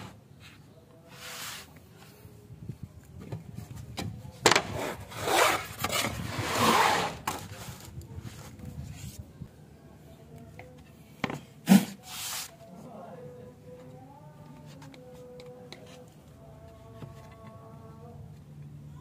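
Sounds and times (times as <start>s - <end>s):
wooden boards scraping on plywood: 4.6s - 7.8s.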